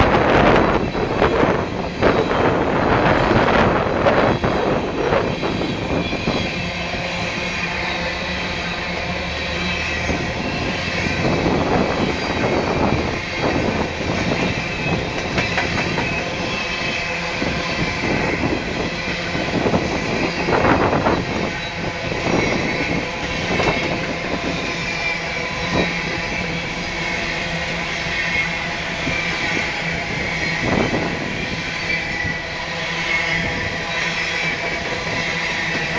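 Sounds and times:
train wheels rumbling on rails: 0.0 - 35.9
wheel squeal: 4.2 - 35.9
clacks over rail joints: 14.1 - 17.0.

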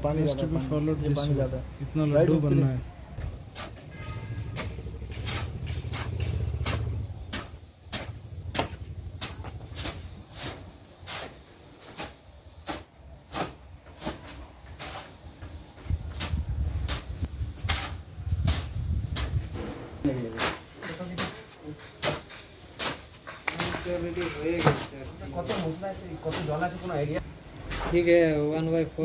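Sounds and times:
shovel scraping and chopping screed: 3.3 - 15.3, 16.1 - 28.4.

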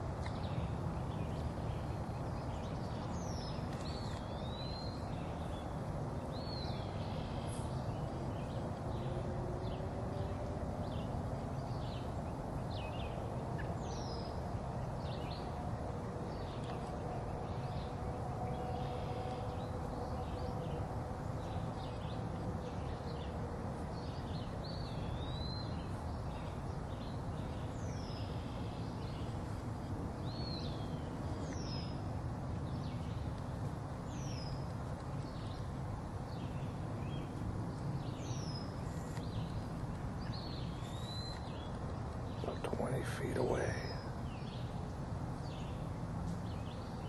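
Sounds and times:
low outdoor rumble: 0.0 - 47.0
songbirds chirping: 0.0 - 47.0.

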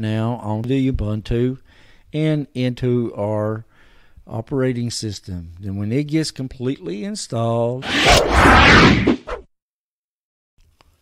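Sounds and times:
whoosh sound effect: 7.8 - 9.4.

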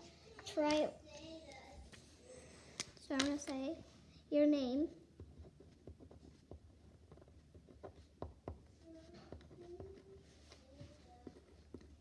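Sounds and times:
pen scratching on paper: 5.2 - 12.0.

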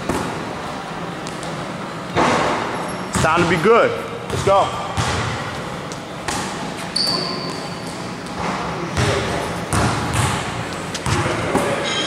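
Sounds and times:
basketball bouncing on court: 4.2 - 11.8
short high squeak: 6.9 - 7.7.

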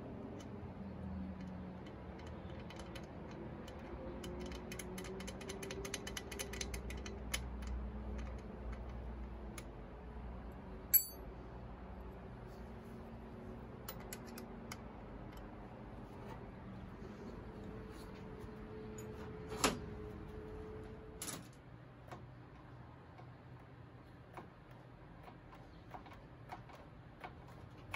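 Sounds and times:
sharp metallic clink: 10.9 - 11.2
metal clicks of hand tools: 11.0 - 11.2.

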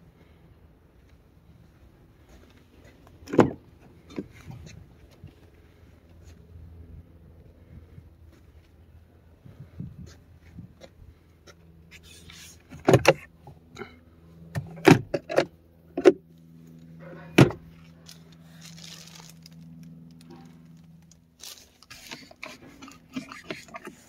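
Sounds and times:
low steady hum: 0.0 - 24.0
plastic sheeting crinkling: 18.1 - 20.8.

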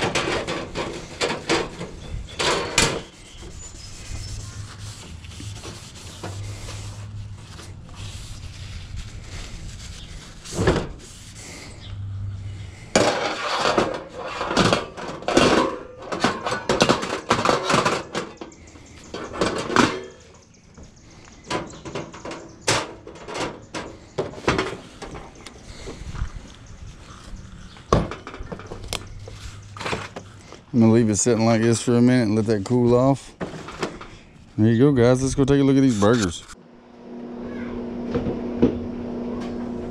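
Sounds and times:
metal grate rattling and scraping: 0.0 - 7.8, 12.7 - 20.5, 21.4 - 26.1, 27.2 - 34.3
cloth rubbing on metal: 2.5 - 11.8.

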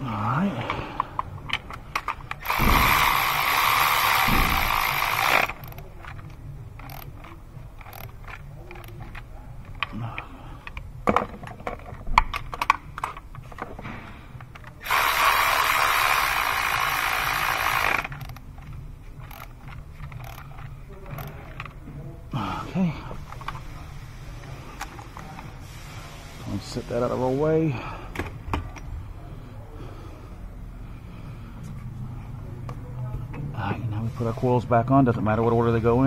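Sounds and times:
tools clicking and knocking: 0.6 - 21.8, 23.2 - 23.7
electric ratchet whirring: 2.0 - 6.2, 6.8 - 7.2, 7.8 - 9.0, 14.8 - 18.5, 19.2 - 21.4.

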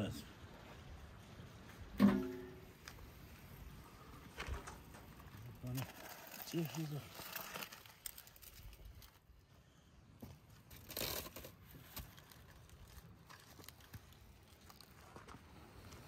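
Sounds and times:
aluminium foil crinkling: 5.1 - 9.4, 10.5 - 16.0.

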